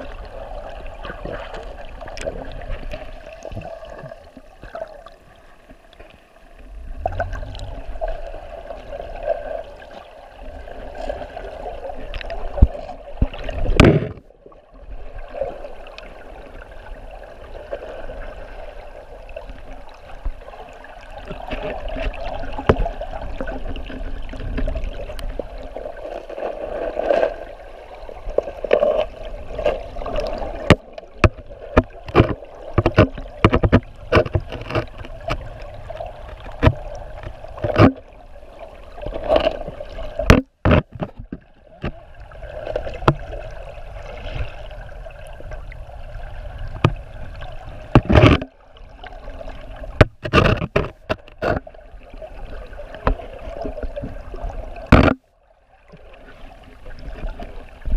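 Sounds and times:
muffled underwater stream rushing: 0.0 - 57.9
camera housing clicks and knocks: 54.9 - 55.2.

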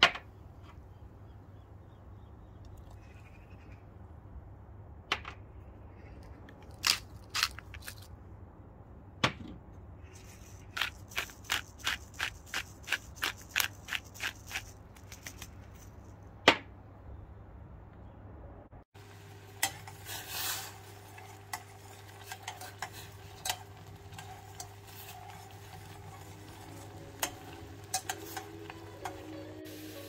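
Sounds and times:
pepper mill clicking: 6.7 - 8.0, 10.7 - 15.5.

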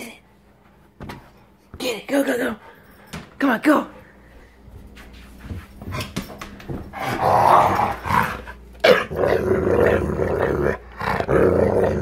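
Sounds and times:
dog growling: 7.0 - 12.0.

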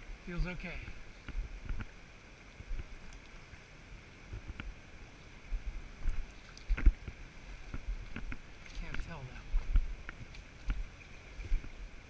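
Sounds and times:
river water rushing: 0.0 - 12.0
faint clicks: 2.8 - 3.4.

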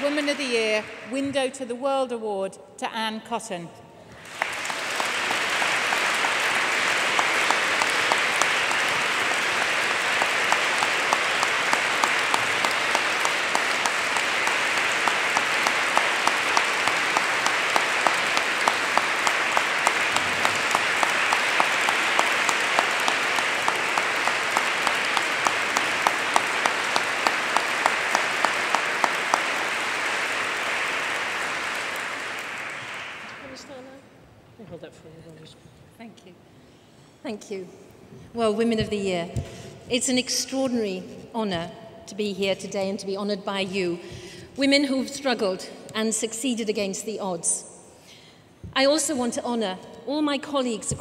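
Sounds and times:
audience applauding: 0.0 - 1.1, 4.1 - 34.0
sharp claps: 0.0 - 1.3, 4.1 - 33.7.

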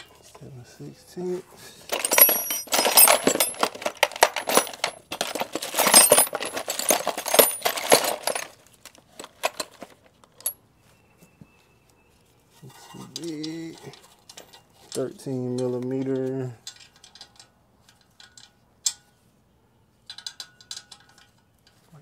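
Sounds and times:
metal sockets clinking: 1.9 - 10.6, 12.8 - 19.2.

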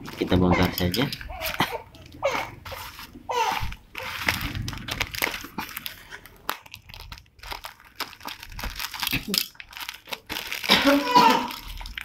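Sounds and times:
scissors cutting plastic: 0.0 - 3.0
plastic wrap crinkling: 0.0 - 12.0.

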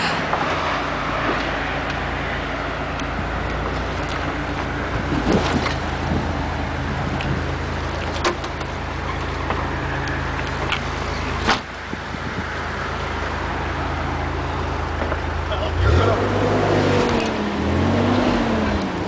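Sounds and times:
truck engine running: 0.0 - 19.0
water rushing and splashing: 2.7 - 8.2.

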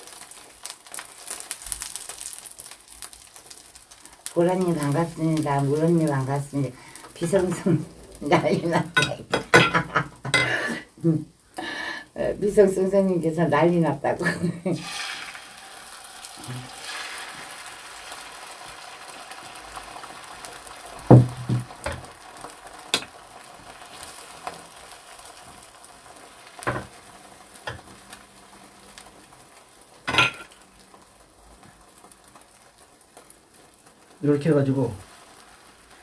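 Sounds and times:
egg sizzling in frying pan: 0.0 - 36.0
wooden spoon knocking on pan: 21.0 - 22.1, 26.6 - 27.0.

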